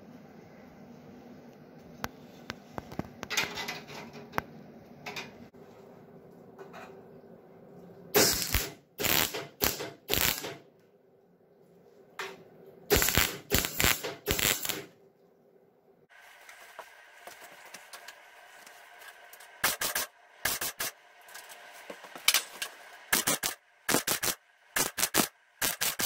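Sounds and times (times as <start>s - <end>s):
welding arc bursts: 8.2s - 10.6s, 12.9s - 14.9s, 19.6s - 21.0s, 23.1s - 26.0s.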